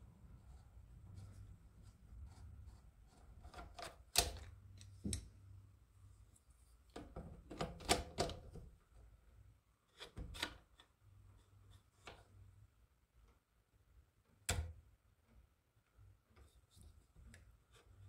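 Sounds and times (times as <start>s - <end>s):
faint low hum: 0.0s - 10.0s.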